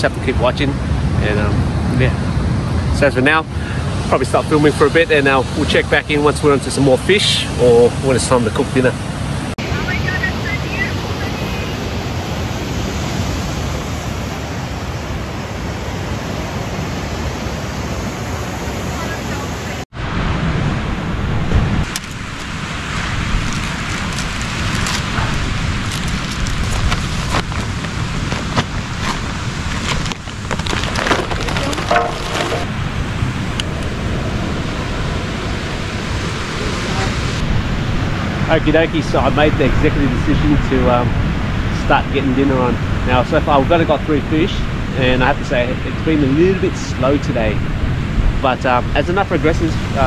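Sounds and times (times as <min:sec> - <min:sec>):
wind: 0:00.0 - 0:50.0
ocean surf breaking: 0:00.2 - 0:50.0
charcoal clattering into metal box: 0:30.6 - 0:32.7.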